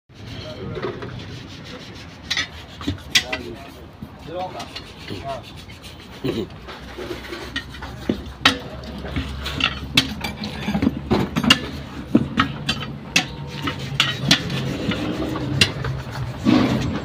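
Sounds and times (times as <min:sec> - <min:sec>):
tyre levers scraping wheel rim: 0:00.2 - 0:17.0
sharp metal knocks: 0:07.5 - 0:17.0.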